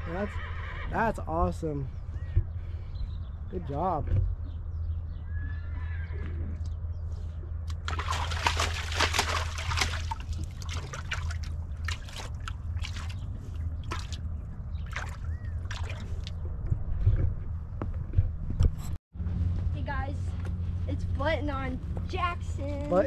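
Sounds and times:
steady low hum: 0:06.5 - 0:23.0
horse splashing water in barrel: 0:07.7 - 0:14.2, 0:14.8 - 0:16.3.

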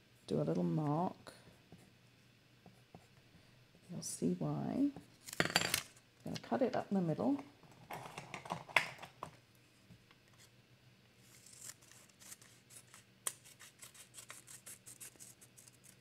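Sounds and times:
scissors snipping paper: 0:11.3 - 0:16.0.

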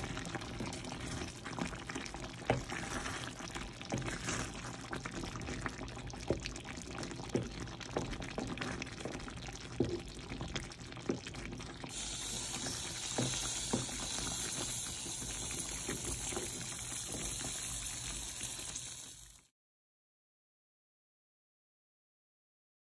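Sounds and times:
stew bubbling in a pan: 0:00.0 - 0:19.5
steady high hiss: 0:11.9 - 0:16.2.

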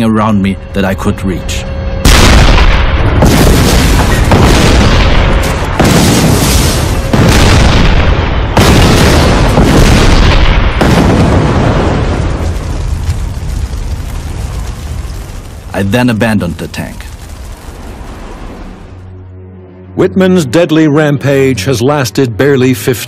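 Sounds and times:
cannon fire and explosions: 0:02.0 - 0:19.2.

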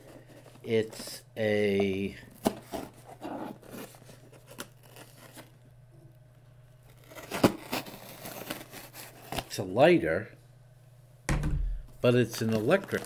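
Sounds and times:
sharp cardboard crunch: 0:06.9 - 0:09.5
knife cutting cardboard: 0:07.0 - 0:09.4.

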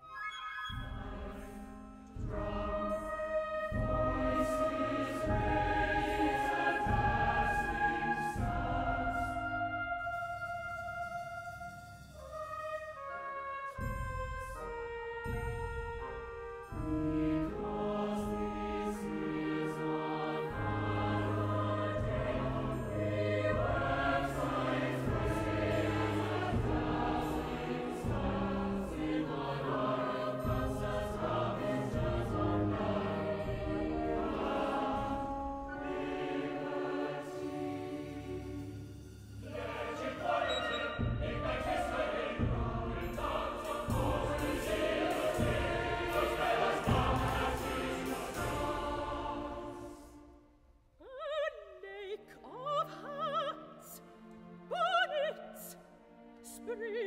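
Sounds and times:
symphony orchestra: 0:00.0 - 0:50.4
mixed choir singing: 0:00.7 - 0:11.3, 0:15.9 - 0:50.4, 0:51.0 - 0:55.8.

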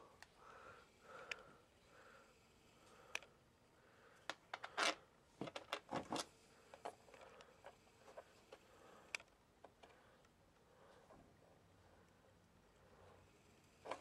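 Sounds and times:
cable handling clicks and rustles: 0:01.2 - 0:01.6, 0:02.8 - 0:03.4, 0:04.2 - 0:11.3, 0:13.8 - 0:14.0.

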